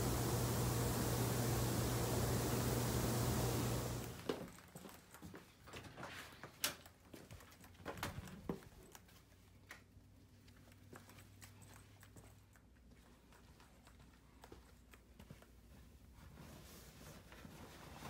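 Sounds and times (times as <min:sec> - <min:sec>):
hot tub jets rushing: 0:00.0 - 0:04.3
footsteps on tiled floor: 0:04.2 - 0:09.3.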